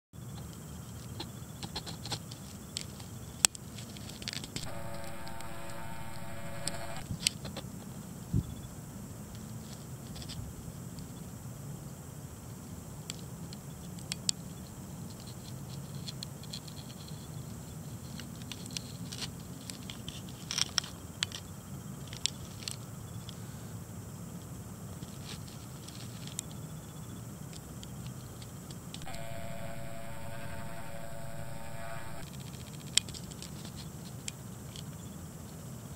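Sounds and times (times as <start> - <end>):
steady low hum: 4.6 - 7.0, 29.0 - 32.2.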